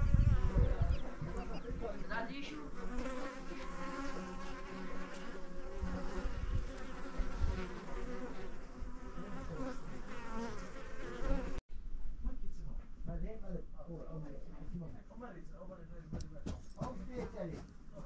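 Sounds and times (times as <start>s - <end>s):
bees buzzing: 0.0s - 11.6s.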